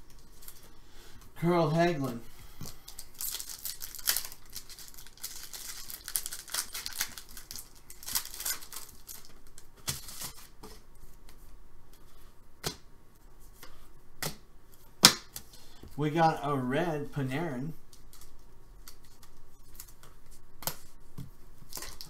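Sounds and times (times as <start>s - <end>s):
plastic wrapper crinkling: 2.6s - 10.5s, 21.7s - 22.0s.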